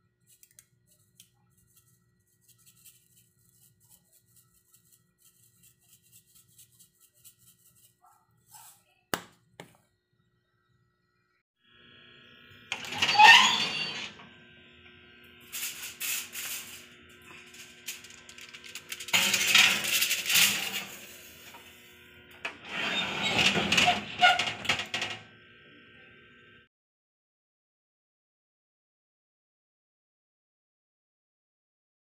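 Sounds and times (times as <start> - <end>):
metal oven door and rack clanking: 12.7 - 14.2, 17.4 - 21.7, 22.4 - 25.3
baking tray sliding in: 12.7 - 14.3, 15.7 - 21.8, 22.4 - 25.3.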